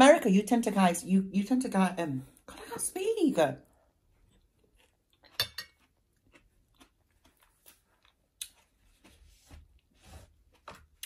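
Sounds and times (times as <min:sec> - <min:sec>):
faint close-up chewing: 0:03.6 - 0:09.9.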